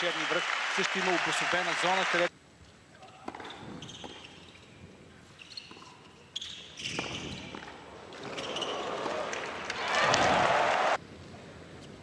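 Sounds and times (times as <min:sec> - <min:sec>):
shoes squeaking on court: 0:03.0 - 0:09.5.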